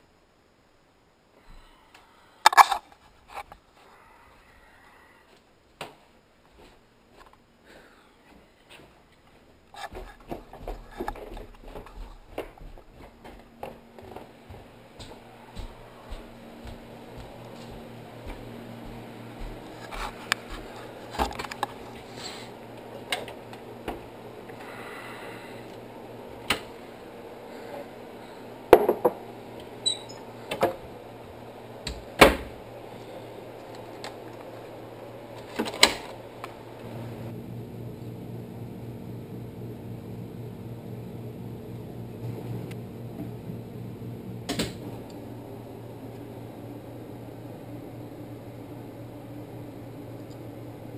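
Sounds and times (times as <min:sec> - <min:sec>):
steady low hum: 0:00.0 - 0:50.9
knocks and clicks of cupboards: 0:28.8 - 0:29.2.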